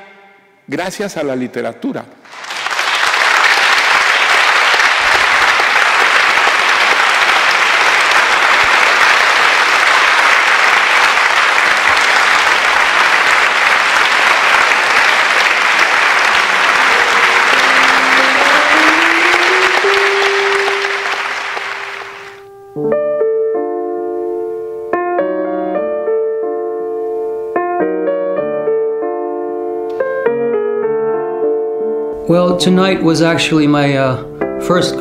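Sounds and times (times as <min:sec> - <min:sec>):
audience applauding: 0:02.2 - 0:22.4
piano notes: 0:04.8 - 0:35.0.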